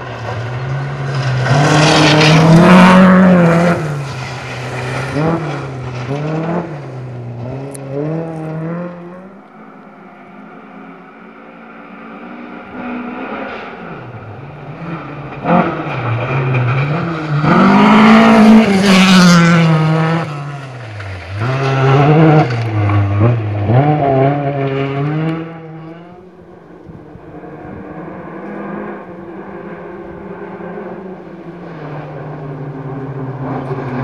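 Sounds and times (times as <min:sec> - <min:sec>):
rally car engine revving: 0:00.0 - 0:34.0.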